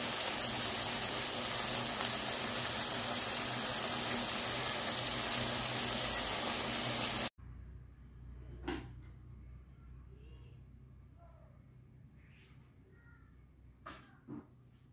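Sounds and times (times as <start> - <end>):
stew sizzling in a pan: 0.0 - 7.3.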